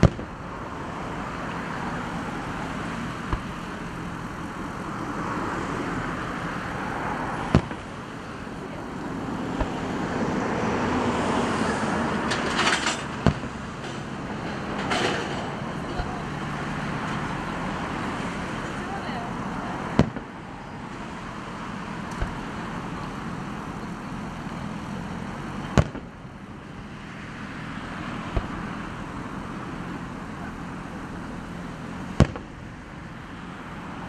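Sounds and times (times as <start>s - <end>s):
firework bangs: 0.0s - 0.6s, 1.4s - 5.0s, 6.0s - 15.4s, 18.7s - 26.9s, 27.9s - 32.7s
steady background noise: 0.0s - 34.0s
crackling firework stars: 1.3s - 5.0s, 6.1s - 10.1s, 18.8s - 26.9s.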